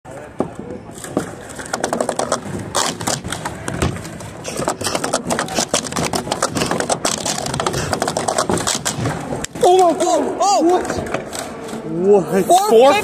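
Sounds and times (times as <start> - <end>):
plastic cups clacking and scraping: 0.3 - 12.0.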